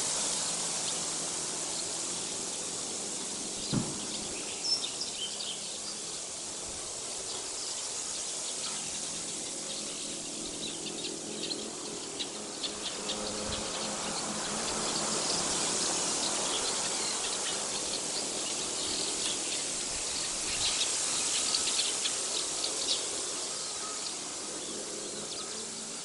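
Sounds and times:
steady outdoor hiss: 0.0s - 26.0s
small birds chirping: 0.1s - 26.0s
low thump: 3.7s - 4.1s.

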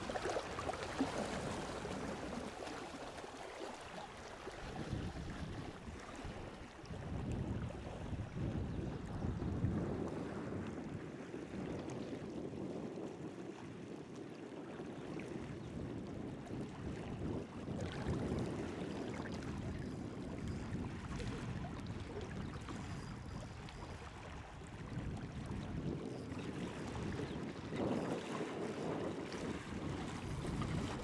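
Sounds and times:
river water flowing: 0.0s - 7.0s
wind noise on microphone: 0.0s - 31.0s.

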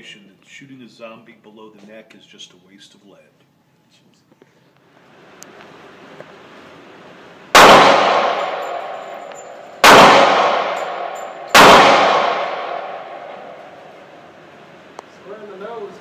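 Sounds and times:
gunshots echoing indoors: 7.5s - 15.0s.

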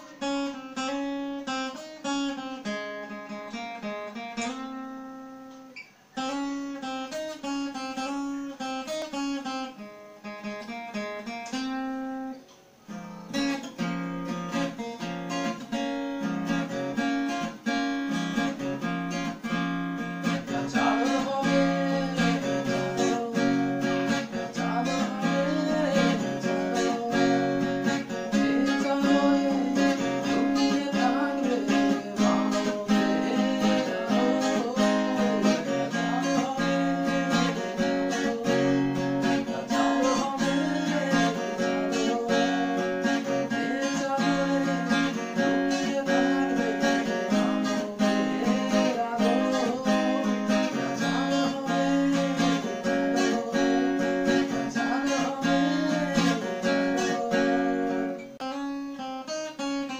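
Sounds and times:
acoustic guitar playing: 0.0s - 59.9s
man singing: 14.5s - 58.5s.

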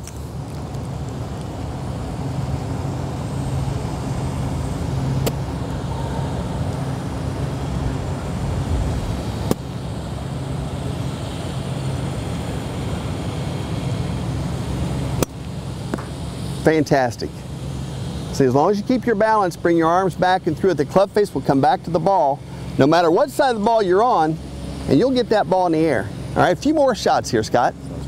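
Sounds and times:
distant traffic hum: 0.0s - 28.0s
golf club striking ball: 5.2s - 5.5s, 15.2s - 16.2s.

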